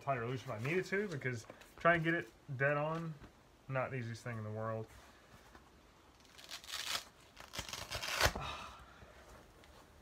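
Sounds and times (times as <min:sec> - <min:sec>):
velcro ripping and rustling: 0:06.1 - 0:08.4.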